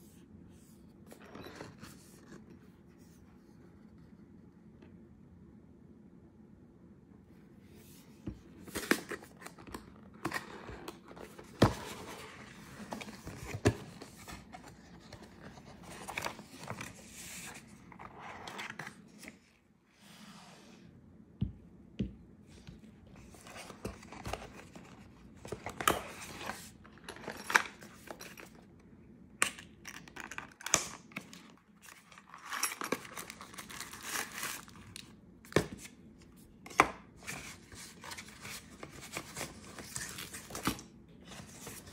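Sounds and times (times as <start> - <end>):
cardboard packaging handled: 8.6 - 19.5, 31.1 - 36.0
paper rustling and crinkling: 8.6 - 19.5, 31.1 - 36.0.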